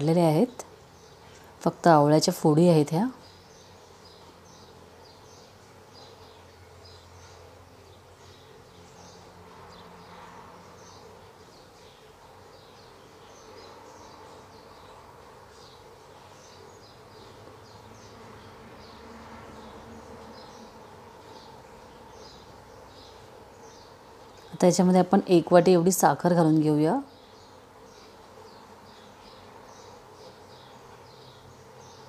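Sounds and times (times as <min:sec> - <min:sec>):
low steady hum: 0:00.0 - 0:32.0.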